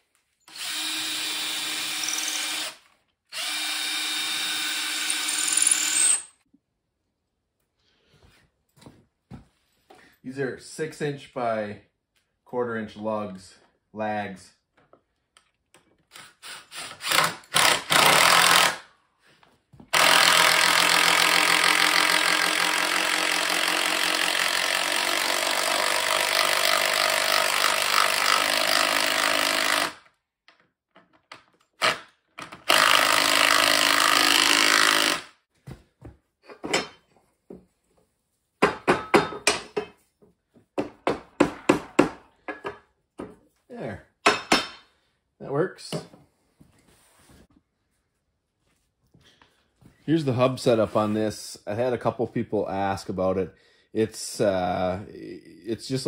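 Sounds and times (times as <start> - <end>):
impact driver hammering screws: 0.5 - 6.3, 16.1 - 18.8, 19.9 - 30.2, 31.7 - 35.3.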